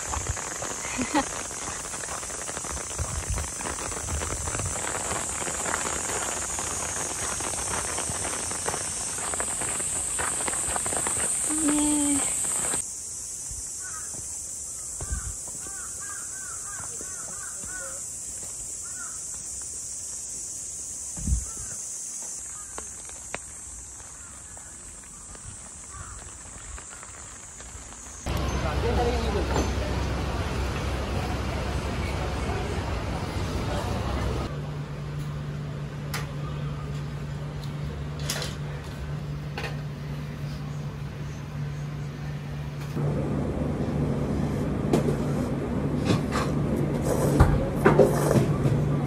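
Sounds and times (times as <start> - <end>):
steady high-pitched hiss: 0.0 - 44.6
crows cawing: 13.8 - 14.2, 15.0 - 18.0, 18.8 - 19.2, 22.5 - 22.8, 24.0 - 27.2.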